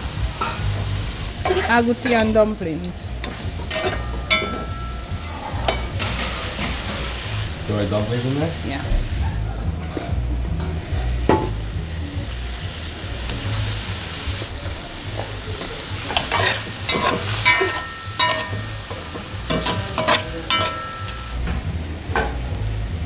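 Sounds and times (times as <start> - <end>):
metal spoon scraping a pot: 3.2 - 6.7, 16.1 - 21.2.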